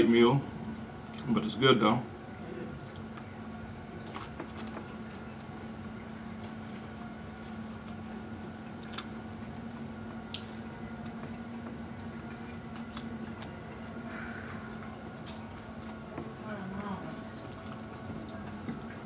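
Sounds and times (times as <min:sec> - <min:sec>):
person chewing crunchy food: 0:03.9 - 0:19.0.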